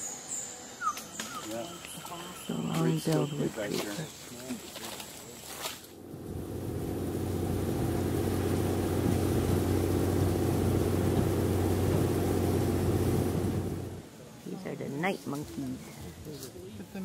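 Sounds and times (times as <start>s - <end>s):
boat engine running: 6.0s - 14.0s.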